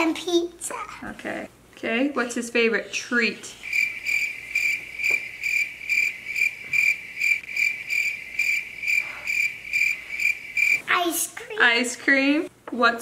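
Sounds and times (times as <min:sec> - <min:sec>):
cricket chirping: 0:03.6 - 0:10.9.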